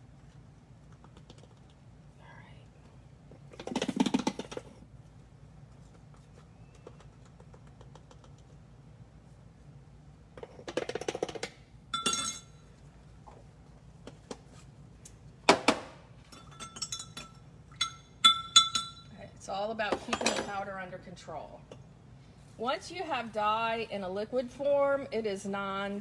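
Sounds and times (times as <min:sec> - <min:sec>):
spoon clinking glass jars: 0:12.0 - 0:12.6, 0:16.3 - 0:19.1.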